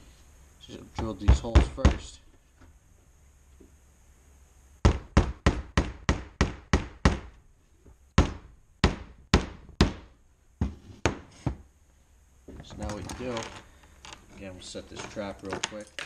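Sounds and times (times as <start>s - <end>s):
hammer striking nail into wood: 4.8s - 7.4s, 8.2s - 11.3s.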